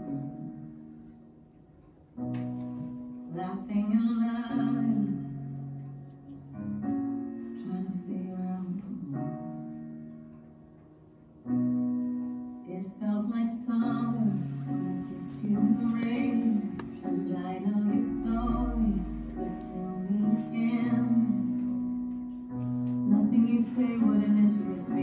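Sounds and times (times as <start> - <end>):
person singing: 12.7 - 21.6
sustained keyboard chords: 13.8 - 25.0.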